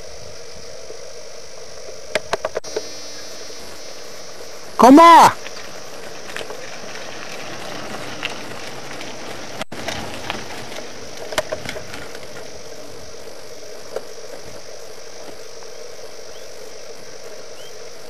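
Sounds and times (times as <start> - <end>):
faint hum: 0.0 - 9.7
outdoor background hiss: 0.0 - 18.0.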